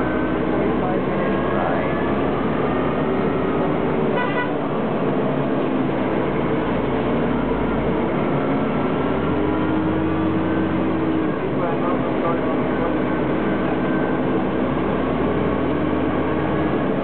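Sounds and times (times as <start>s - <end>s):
bus engine running: 0.0s - 17.0s
road noise: 0.0s - 17.0s
bus horn toot: 4.1s - 4.7s.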